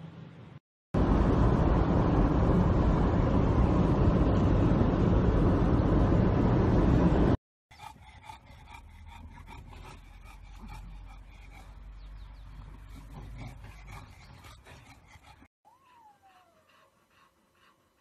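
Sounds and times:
road and wind noise in car: 1.0 - 7.4.

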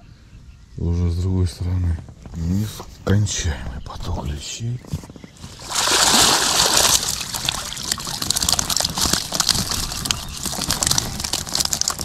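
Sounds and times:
water trickling and sloshing: 5.4 - 12.0
small splashes and drips: 5.5 - 12.0.

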